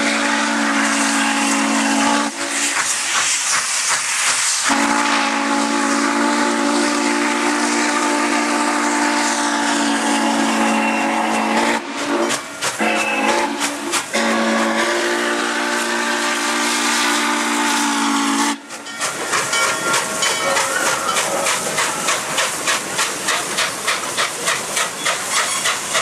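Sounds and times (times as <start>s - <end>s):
steam whistle blasts: 0.0s - 2.8s, 4.5s - 18.8s
steam hissing: 0.0s - 26.0s
train running: 0.0s - 26.0s.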